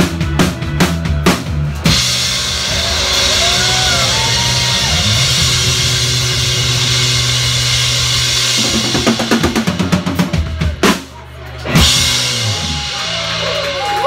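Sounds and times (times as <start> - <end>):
drums: 0.0 - 14.0
sliding pitched notes: 1.8 - 10.5
held low bass note: 2.7 - 9.9.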